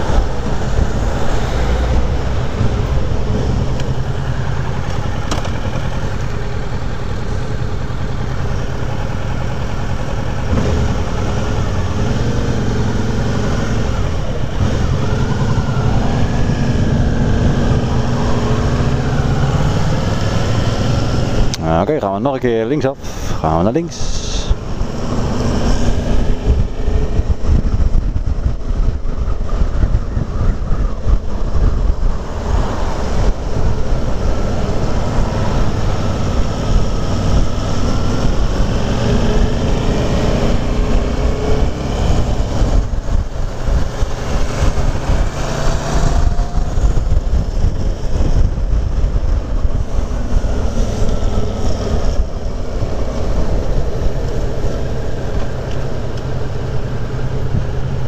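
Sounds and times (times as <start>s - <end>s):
motorcycle engine running: 0.0s - 21.5s
wind rushing over microphone: 0.0s - 58.0s.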